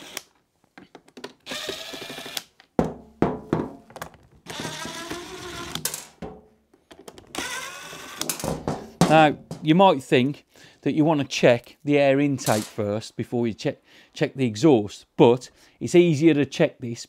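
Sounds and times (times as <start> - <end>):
cordless driver motor whining: 0.0 - 0.3, 1.5 - 2.5, 4.5 - 5.8, 7.3 - 8.3.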